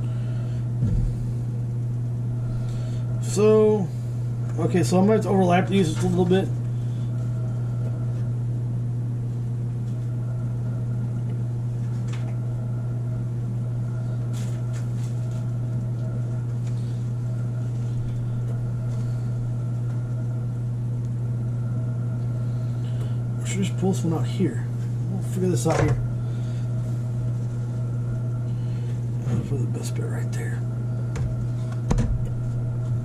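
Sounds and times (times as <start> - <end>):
low mechanical hum: 0.0 - 33.0.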